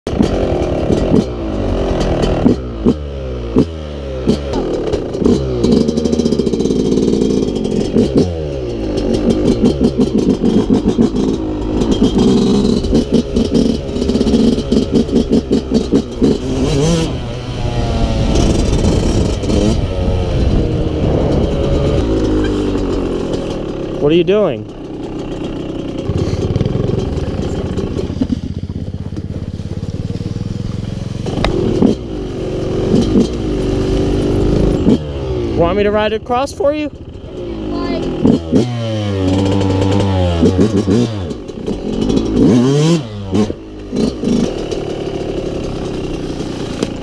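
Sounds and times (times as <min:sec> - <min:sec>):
dirt bike engine revving: 0:00.1 - 0:47.0.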